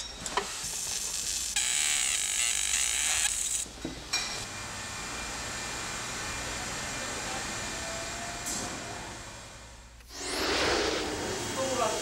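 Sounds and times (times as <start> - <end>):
laser machine buzzing whine: 0.6 - 3.7.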